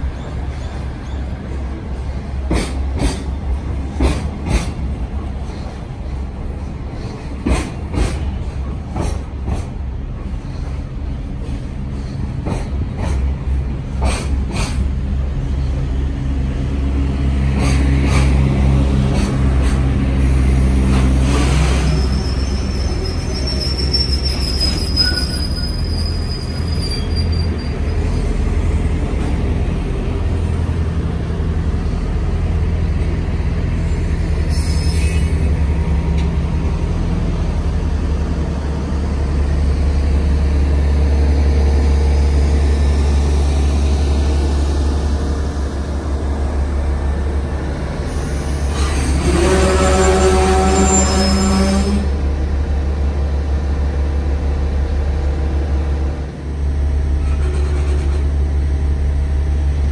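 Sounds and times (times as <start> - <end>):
freight train wheels rumbling on rail: 0.0 - 59.9
clacks at rail joints: 2.4 - 5.8, 7.0 - 9.8, 12.0 - 14.9, 17.5 - 19.9
high wheel squeal: 21.6 - 28.9, 33.8 - 35.5, 48.0 - 52.0.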